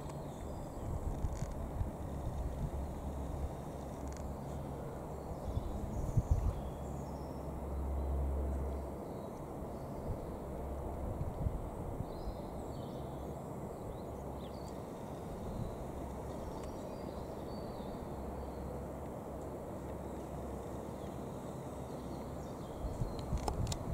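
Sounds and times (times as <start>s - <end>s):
turboprop engines rumbling: 0.0s - 23.9s.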